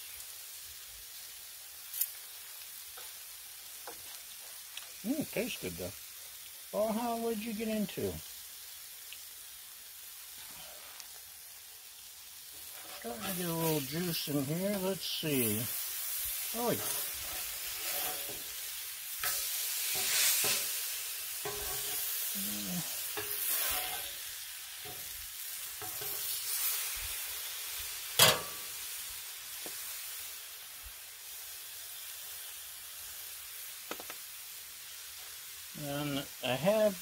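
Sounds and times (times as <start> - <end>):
burger patties sizzling on griddle: 0.0 - 37.0
metal spatula scraping griddle: 12.5 - 25.1, 25.8 - 26.6, 28.2 - 28.6
sharp metal clack: 28.2 - 28.6.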